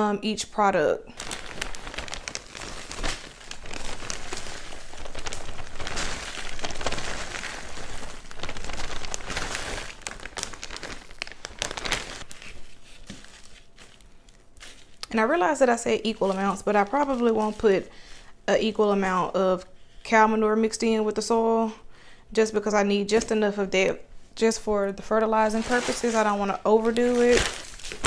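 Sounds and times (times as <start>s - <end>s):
plastic bag crinkling: 1.1s - 18.2s, 25.3s - 28.0s.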